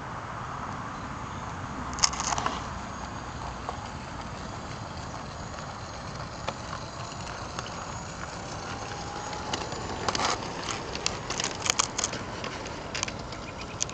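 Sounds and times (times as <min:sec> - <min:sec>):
faint whine: 0:00.0 - 0:13.9
sharp clicks and ticks: 0:03.4 - 0:13.9.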